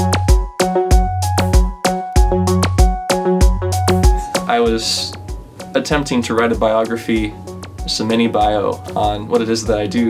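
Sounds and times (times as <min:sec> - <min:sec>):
electronic house beat: 0:00.0 - 0:06.1.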